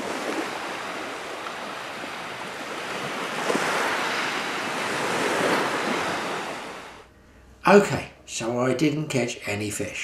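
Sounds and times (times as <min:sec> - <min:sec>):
sea surf breaking on beach: 0:00.0 - 0:07.1.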